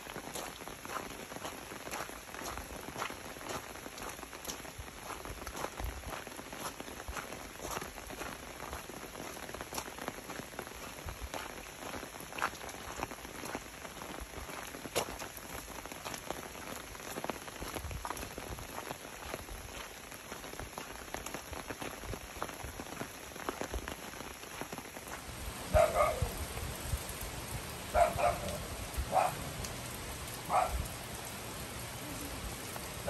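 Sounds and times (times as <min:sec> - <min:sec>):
steady rain falling: 0:00.0 - 0:33.0
raindrops tapping sharply: 0:24.6 - 0:33.0.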